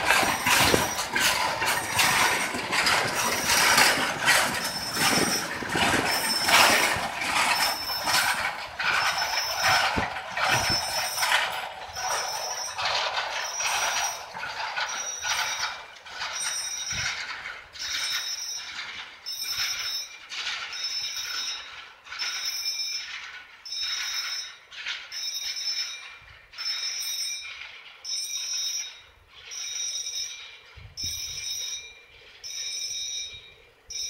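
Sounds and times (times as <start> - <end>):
level crossing bell ringing: 0.0 - 17.1, 23.7 - 30.5, 31.1 - 34.0
freight wagons rolling: 0.0 - 34.0.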